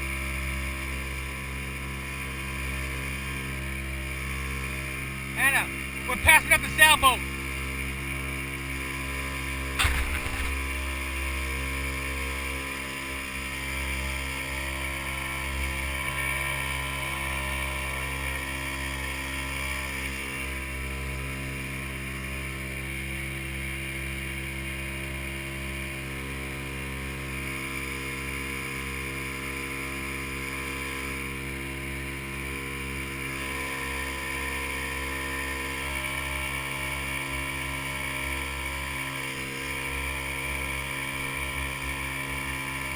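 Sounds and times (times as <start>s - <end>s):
motorboat engine running: 0.0s - 42.9s
sharp knock: 9.8s - 10.6s.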